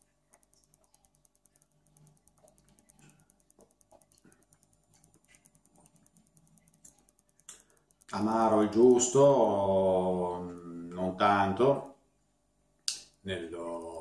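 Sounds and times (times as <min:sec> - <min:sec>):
faint small clicks: 0:00.0 - 0:09.6.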